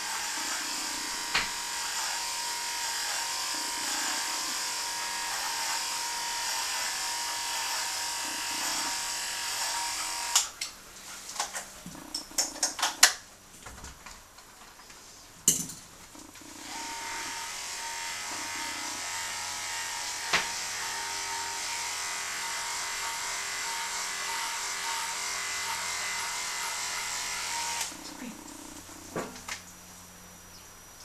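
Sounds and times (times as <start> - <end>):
electric clippers humming: 0.0 - 10.6, 16.1 - 29.6.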